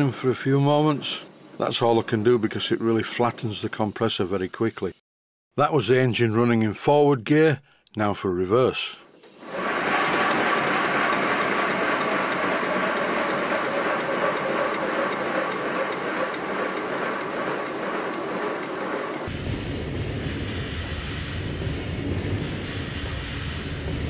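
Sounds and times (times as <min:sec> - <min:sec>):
air hissing from cylinder drain cocks: 0:00.0 - 0:04.9, 0:09.0 - 0:19.3
locomotive exhaust beats: 0:09.4 - 0:19.3.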